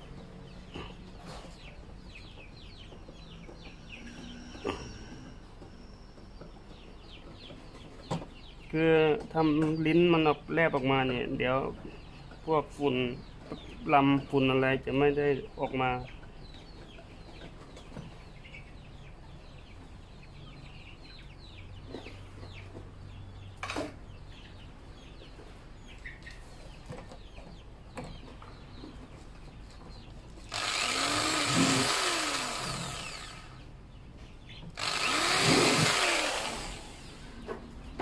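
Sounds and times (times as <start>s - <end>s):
electric drill spinning: 30.5s - 33.6s, 34.8s - 37.2s.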